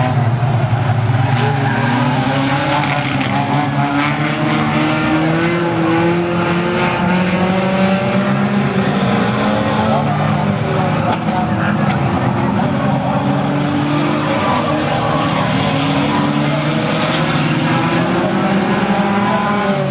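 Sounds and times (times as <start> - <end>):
racing car engines revving: 0.0 - 19.9.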